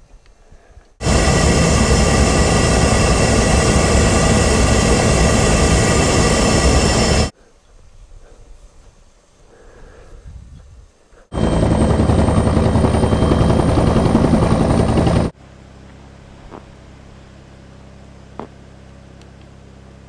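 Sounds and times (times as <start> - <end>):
helicopter engine and rotor: 1.0 - 7.3, 11.3 - 15.4.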